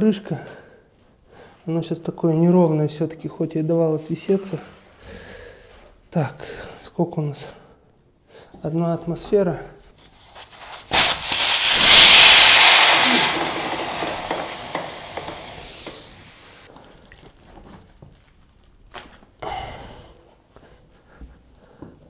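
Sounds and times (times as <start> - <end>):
air hissing out of tyre: 10.4 - 16.7.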